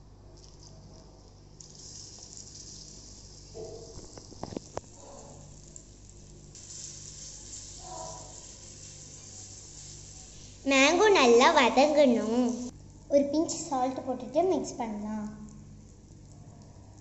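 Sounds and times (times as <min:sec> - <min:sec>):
hot oil sizzling: 0:01.4 - 0:13.1.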